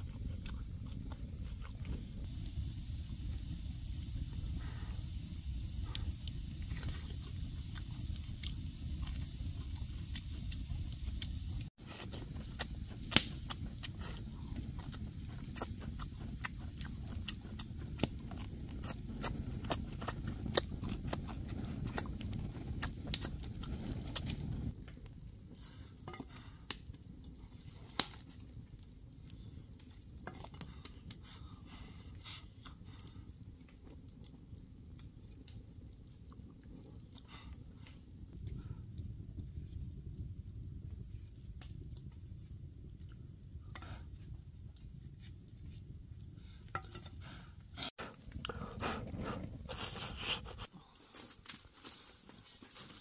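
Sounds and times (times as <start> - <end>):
low rumble: 0.0 - 18.4
chewing and crunching: 0.0 - 38.7, 46.8 - 53.0.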